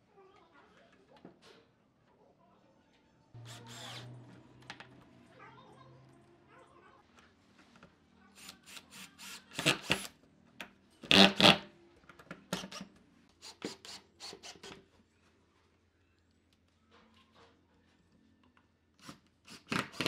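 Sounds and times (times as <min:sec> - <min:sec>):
drill boring into wood: 0:03.4 - 0:04.1, 0:08.4 - 0:10.1, 0:11.1 - 0:11.6, 0:19.0 - 0:20.0.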